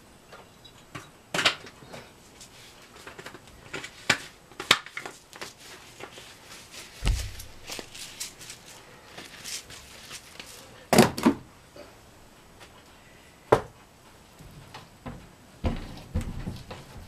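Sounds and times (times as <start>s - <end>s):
heavy low thump: 7.0s - 7.7s.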